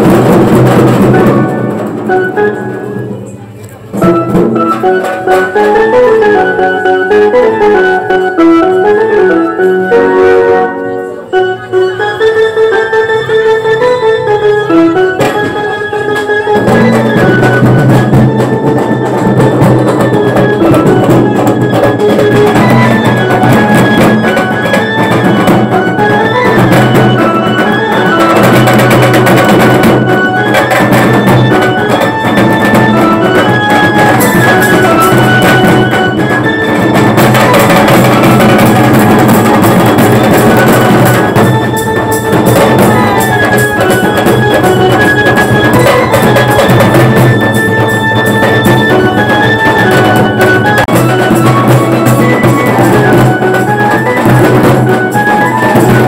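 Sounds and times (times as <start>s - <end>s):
loud driving drums: 0.0s - 3.0s, 16.4s - 56.0s
band playing a tune: 0.0s - 56.0s.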